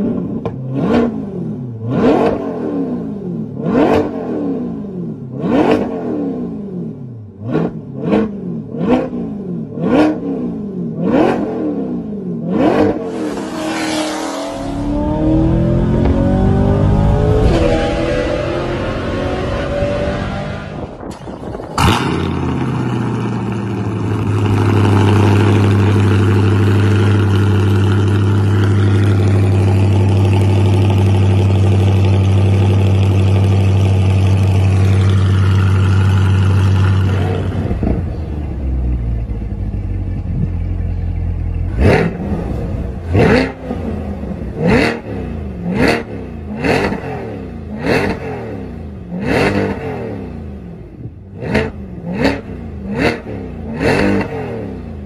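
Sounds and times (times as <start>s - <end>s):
car engine revving: 0.0s - 55.0s
car engine starting and idling: 12.8s - 45.6s.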